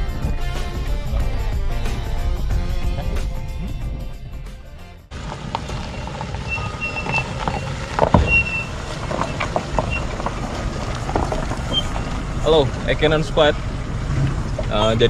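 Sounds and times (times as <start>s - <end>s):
background music: 0.0s - 5.1s
car engine running low: 0.0s - 15.0s
tyres crunching over stones: 5.1s - 15.0s.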